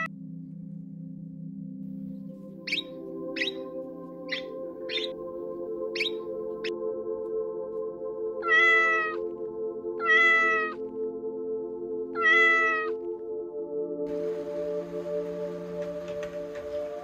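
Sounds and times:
cat meowing: 8.4 - 9.2, 10.0 - 10.8, 12.2 - 13.0.

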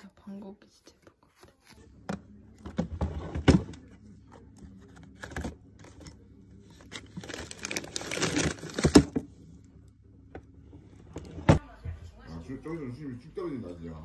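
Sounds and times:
freezer hum: 1.9 - 11.6
wrappers crinkling: 6.9 - 9.1.

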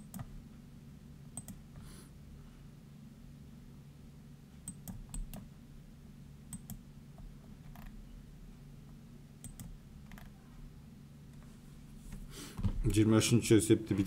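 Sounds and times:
steady low hum: 0.0 - 14.0
sharp computer clicks: 1.3 - 1.6, 4.7 - 5.5, 6.5 - 6.8, 9.4 - 10.3.

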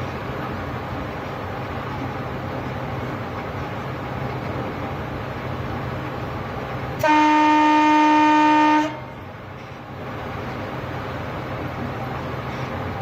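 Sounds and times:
train running noise: 0.0 - 13.0
train horn blast: 7.0 - 9.2.

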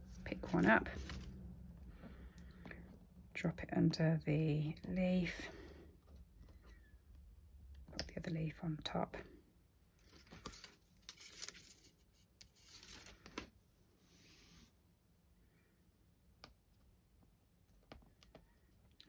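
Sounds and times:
paper rustling and scraping: 0.0 - 1.4, 10.0 - 14.7.

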